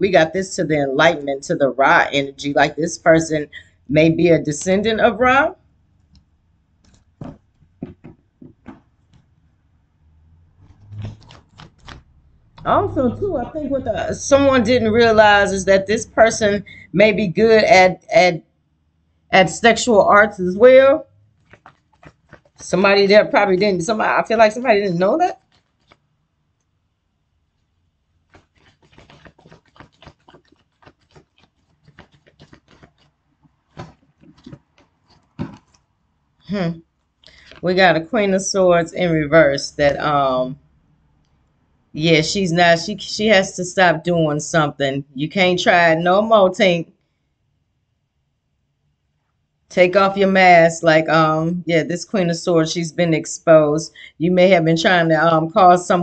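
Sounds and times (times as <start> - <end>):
cards shuffling and clicking: 10.8 - 12.0, 28.3 - 33.1, 33.7 - 35.8.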